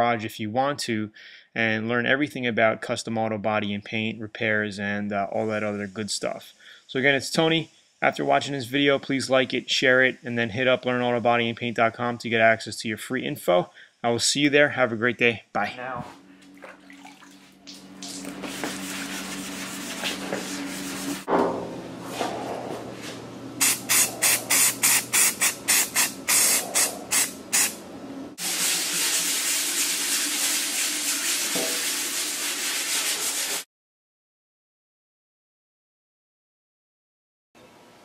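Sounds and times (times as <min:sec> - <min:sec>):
sandpaper rasping on panel: 0:18.4 - 0:21.3, 0:28.4 - 0:33.7.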